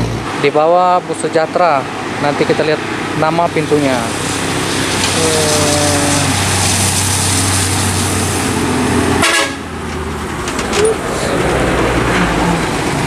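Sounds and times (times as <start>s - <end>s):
bus diesel engine running: 0.0s - 13.0s
bus horn toot: 9.2s - 9.8s.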